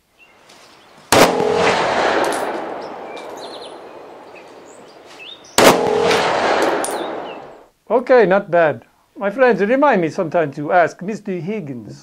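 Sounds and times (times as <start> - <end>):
sharp pistol shot: 1.1 - 4.3, 5.5 - 7.6
pistol shot echoing: 1.1 - 4.8, 5.5 - 7.6.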